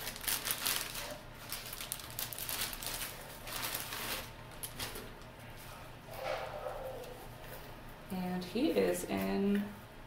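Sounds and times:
plastic bag crinkling: 0.0 - 5.2.

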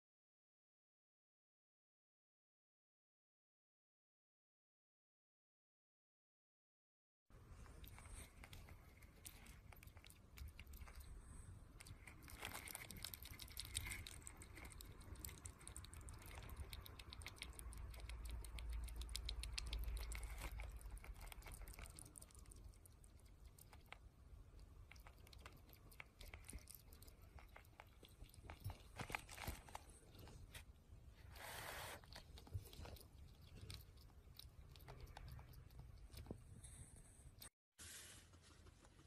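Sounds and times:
hedgehog lapping water: 7.6 - 30.6, 31.2 - 36.4.

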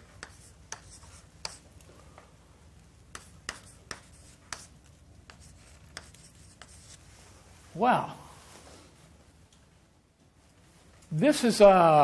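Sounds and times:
chalk scratching on blackboard: 0.0 - 1.6, 3.1 - 7.1.

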